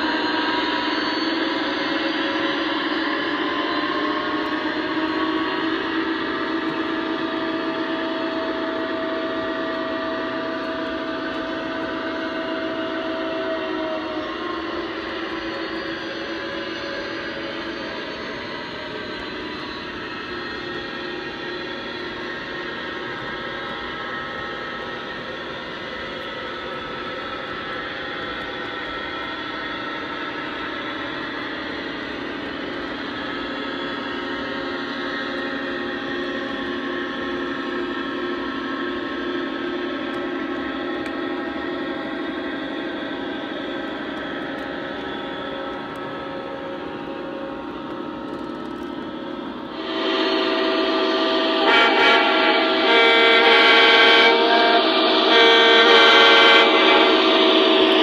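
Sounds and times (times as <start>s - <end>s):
locomotive sound drone: 0.0s - 58.0s
steady high tone: 0.0s - 58.0s
model train wheels rolling: 14.2s - 52.8s.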